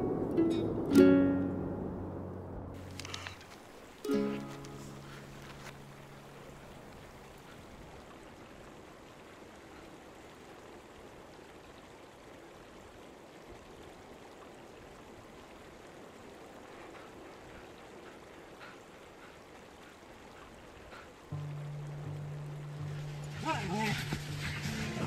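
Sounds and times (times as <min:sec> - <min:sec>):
rushing mountain stream: 0:00.0 - 0:25.0.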